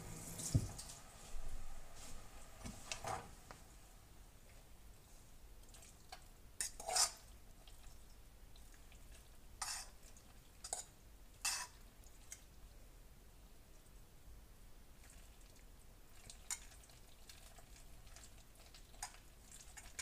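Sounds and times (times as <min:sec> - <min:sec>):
spoon scraping a pot: 0:06.6 - 0:07.3, 0:09.6 - 0:10.0, 0:10.6 - 0:11.8.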